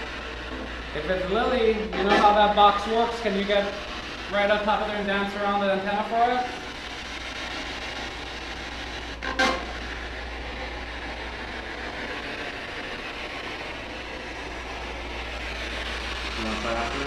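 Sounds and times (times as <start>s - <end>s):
radio static hiss: 0.0s - 10.8s
low hum: 0.0s - 17.0s.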